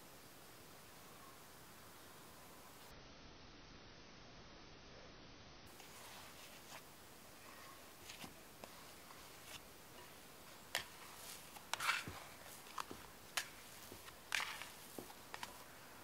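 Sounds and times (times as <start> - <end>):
bread dough squishing: 7.5 - 15.8.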